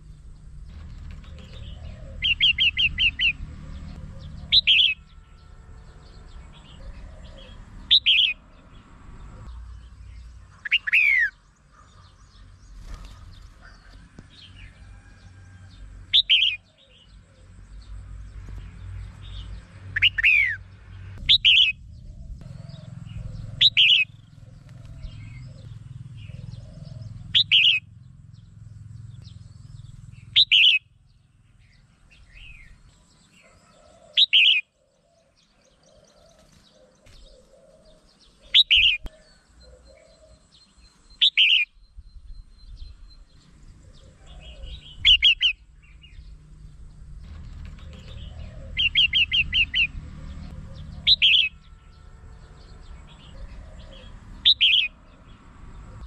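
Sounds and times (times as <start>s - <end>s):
bulbul calling: 0.8s - 5.2s, 6.5s - 8.4s, 10.1s - 14.0s, 16.1s - 17.5s, 20.0s - 20.6s, 21.2s - 28.5s, 29.1s - 31.0s, 33.8s - 41.9s, 43.8s - 46.3s, 47.4s - 51.8s, 53.0s - 55.2s.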